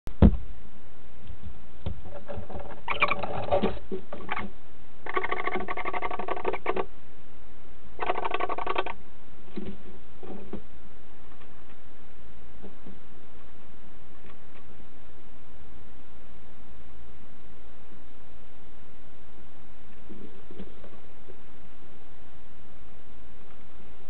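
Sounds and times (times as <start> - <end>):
barn owls buzzy calls: 2.6 - 6.9, 8.0 - 9.0.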